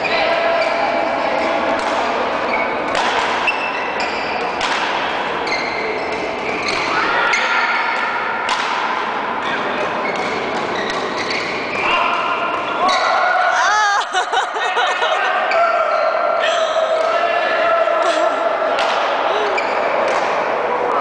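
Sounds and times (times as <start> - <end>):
rackets hitting shuttlecocks: 2.9 - 3.7, 4.4 - 5.4, 8.0 - 9.1, 18.7 - 19.3, 20.0 - 20.5
shoes squeaking on court: 3.4 - 4.5, 5.4 - 7.4, 9.4 - 12.0, 19.6 - 20.2.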